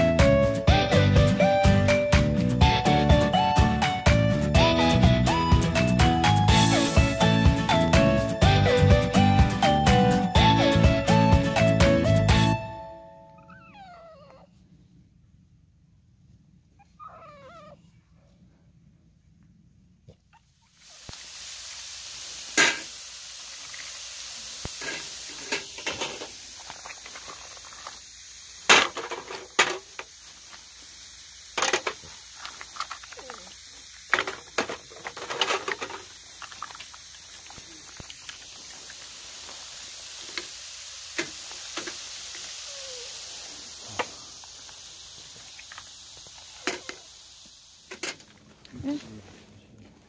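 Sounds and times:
food sizzling on a griddle: 0:05.0 - 0:11.7, 0:20.7 - 0:49.2.

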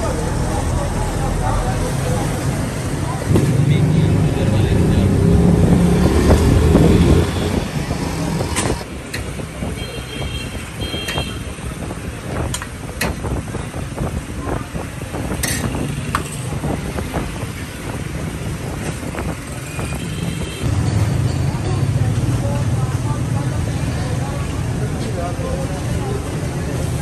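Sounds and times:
passing traffic rumble: 0:00.0 - 0:27.0.

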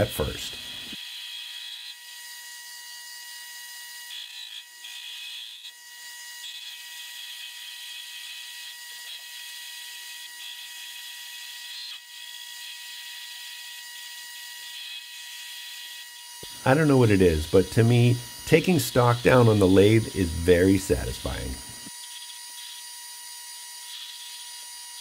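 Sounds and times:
lathe high whine: 0:16.4 - 0:22.8.

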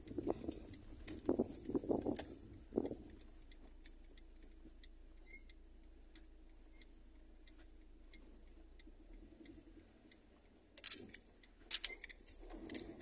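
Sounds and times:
soft regular ticking: 0:00.0 - 0:13.0
sharp rattling clicks: 0:10.8 - 0:13.0.

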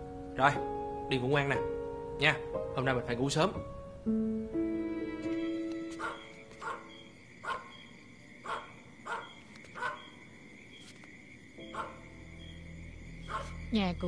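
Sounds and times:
night insects chirring: 0:00.0 - 0:14.0
dog barking fiercely: 0:06.0 - 0:07.8, 0:08.4 - 0:10.1, 0:11.7 - 0:12.0, 0:13.3 - 0:13.6.

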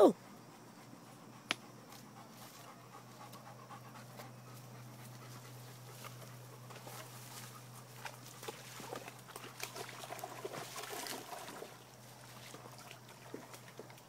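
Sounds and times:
dog panting: 0:00.2 - 0:08.0.

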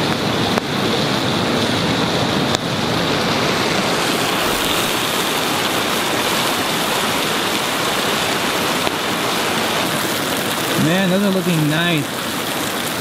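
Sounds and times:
steaks sizzling in a skillet: 0:03.9 - 0:11.7.

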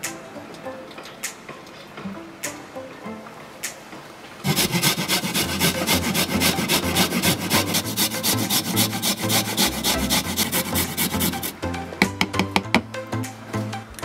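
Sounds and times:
carrot scraping on metal grater: 0:04.5 - 0:11.5.

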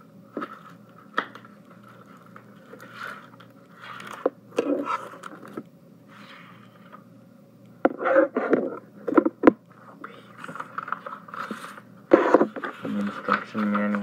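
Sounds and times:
cardboard rustling and scraping: 0:01.8 - 0:07.0, 0:10.5 - 0:14.0.

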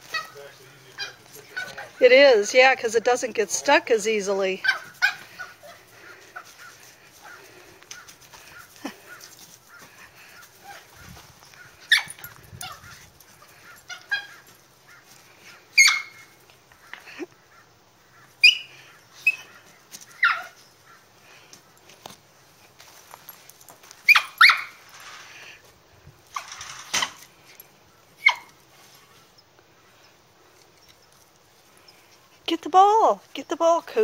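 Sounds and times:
small dog yapping: 0:04.6 - 0:05.8, 0:11.8 - 0:13.1, 0:13.9 - 0:14.5, 0:15.8 - 0:16.4, 0:20.1 - 0:20.6, 0:24.1 - 0:24.8, 0:28.2 - 0:28.6.

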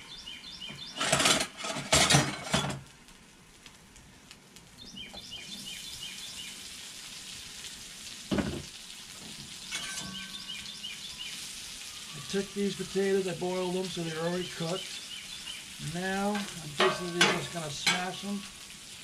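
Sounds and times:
birds chirping: 0:00.0 - 0:01.4, 0:04.7 - 0:06.7, 0:09.4 - 0:18.8
potatoes sizzling on griddle: 0:00.0 - 0:19.0
thump: 0:08.3 - 0:08.7.

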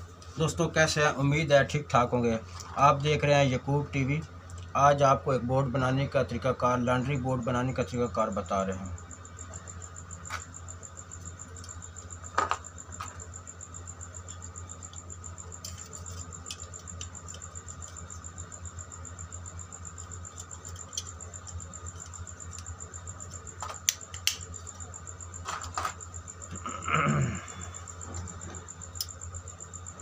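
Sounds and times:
steady low hum: 0:00.0 - 0:30.0
sharp plastic clicks: 0:23.6 - 0:24.5.

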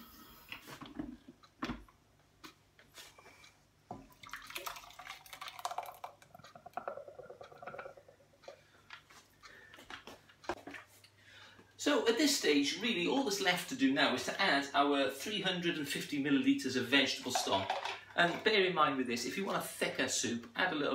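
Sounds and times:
thick soup pouring: 0:04.0 - 0:08.1
plastic bowl clicks and knocks: 0:17.3 - 0:18.4.

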